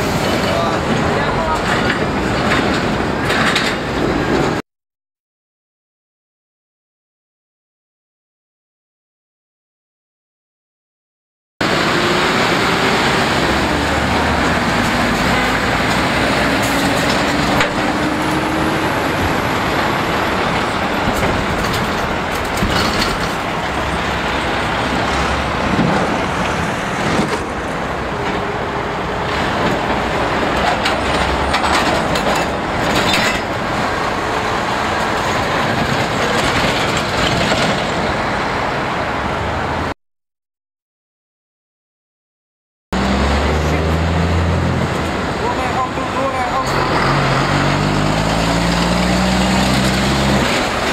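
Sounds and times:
trucks driving past: 11.6 - 40.0, 43.0 - 50.9.

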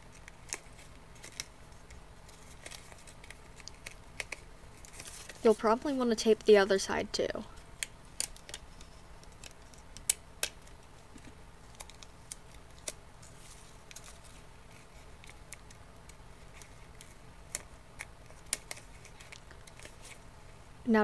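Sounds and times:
paper rustling: 0.2 - 5.8, 10.6 - 15.8, 16.4 - 20.2.

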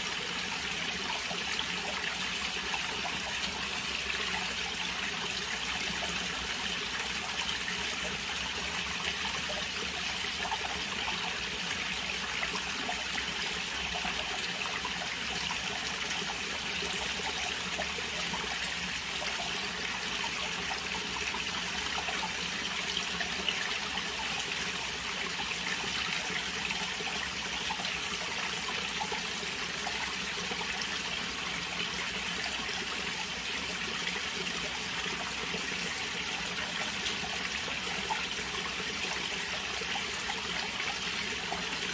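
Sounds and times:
pond water trickling and splashing: 0.0 - 41.9.

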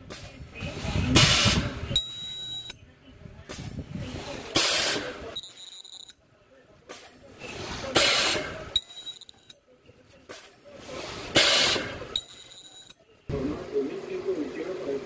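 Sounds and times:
high-pitched ultrasonic whine: 2.0 - 2.8, 5.4 - 6.2, 8.8 - 9.6, 12.2 - 13.0.

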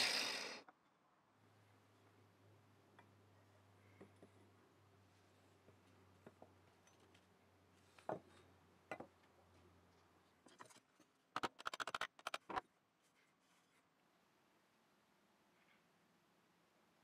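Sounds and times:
sharp clicks: 11.4 - 12.6.

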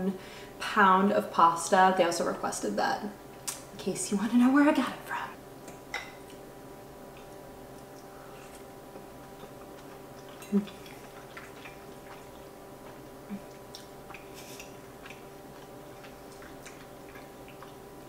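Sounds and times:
low room hum: 0.0 - 18.0
person chewing: 7.1 - 18.0.

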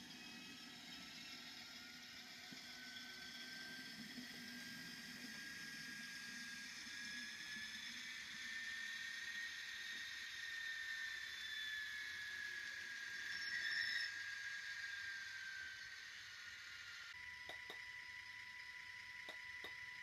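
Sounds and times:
small electric motor whine: 0.0 - 20.0.

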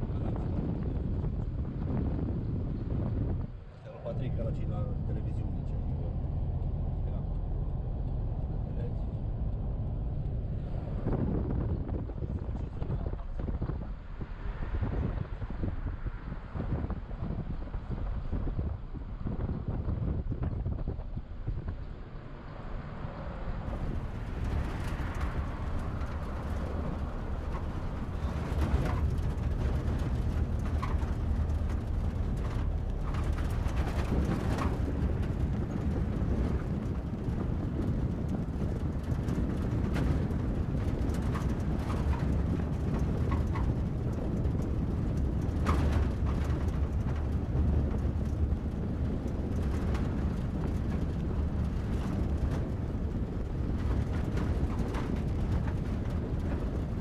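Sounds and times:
car engine and tyre rumble: 0.0 - 57.0
light knocks and rattles: 23.7 - 57.0.

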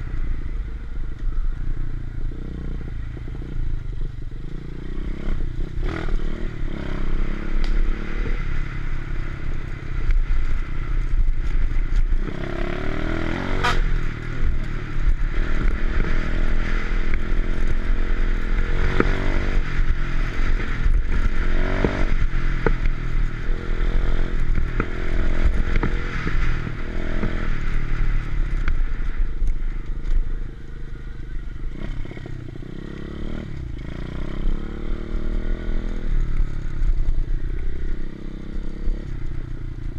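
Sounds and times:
motorbike engine revving: 11.2 - 29.1, 31.6 - 39.3.

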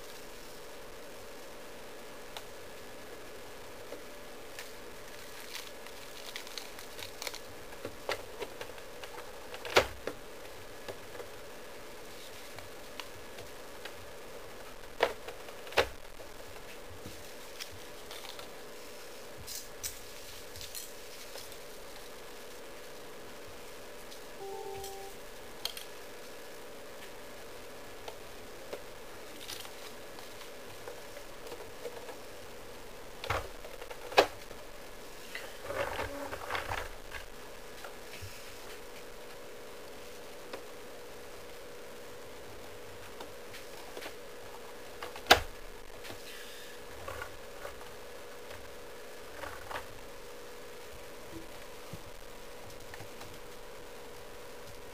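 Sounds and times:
faint steady hum: 0.0 - 54.9.

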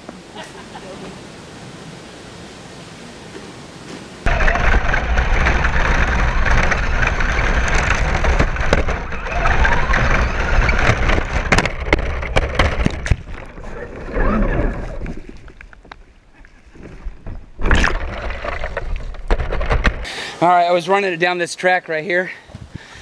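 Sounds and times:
truck knocks and clatters: 4.3 - 13.6, 17.0 - 20.1
toy truck tyres crunching gravel: 4.3 - 20.1.

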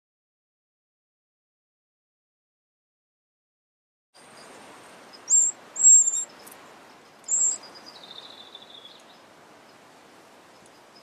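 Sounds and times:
nestlings begging squeaks: 5.1 - 9.2.

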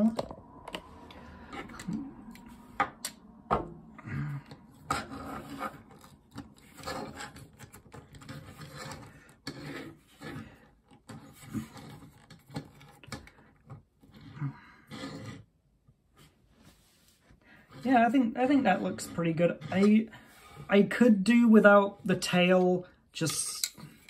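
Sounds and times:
plastic scraping on wood: 0.0 - 15.5, 17.6 - 21.1.

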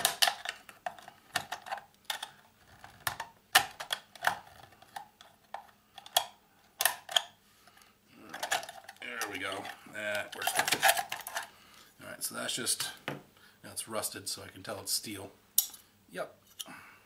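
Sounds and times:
metal snaps: 15.6 - 15.8
pliers clicking and scraping on metal: 15.6 - 16.7.

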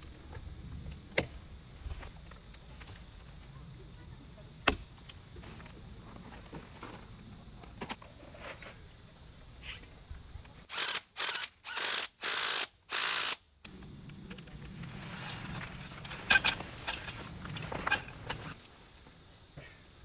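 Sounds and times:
cordless power tool bursts: 10.7 - 13.4.

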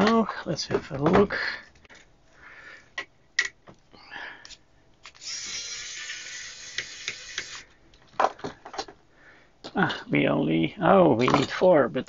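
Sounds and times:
electric screwdriver running: 5.1 - 7.6.

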